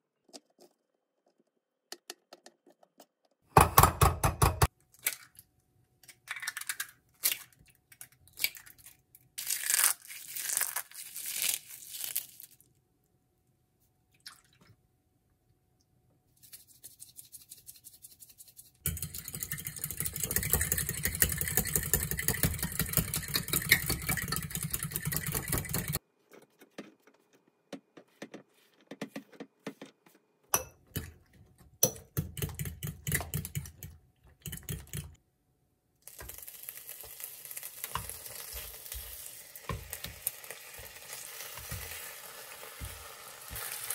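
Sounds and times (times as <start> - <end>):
spoon stirring clicks and scrapes: 18.4 - 26.0, 31.8 - 35.2
spoon beating eggs in bowl: 18.8 - 26.0, 31.8 - 35.2.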